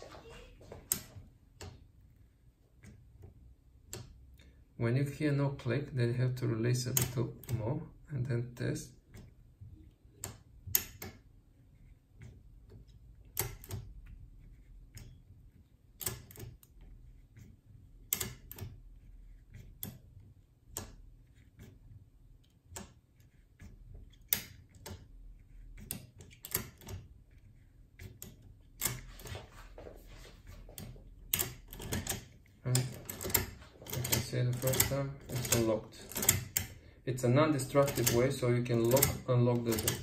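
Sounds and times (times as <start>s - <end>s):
metallic lock clicks: 13.2s - 13.9s, 16.0s - 16.8s, 18.1s - 18.8s, 25.8s - 27.4s, 30.8s - 36.8s, 37.5s - 40.0s.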